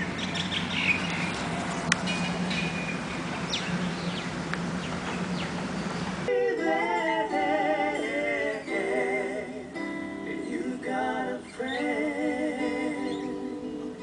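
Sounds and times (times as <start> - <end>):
birds chirping: 0.0 - 6.3, 10.3 - 12.2, 12.9 - 13.9
steady low hum: 0.0 - 14.0
music with guitar and singing: 6.3 - 14.0.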